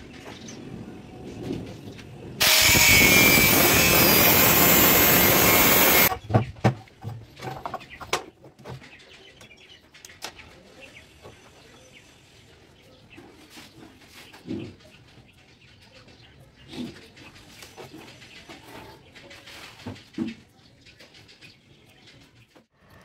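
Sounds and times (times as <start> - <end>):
angle grinder cutting steel: 2.4 - 6.1.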